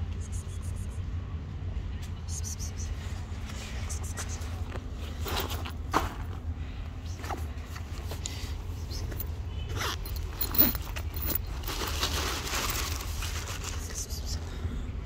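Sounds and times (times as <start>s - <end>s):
footsteps on dry leaves: 9.8s - 13.9s.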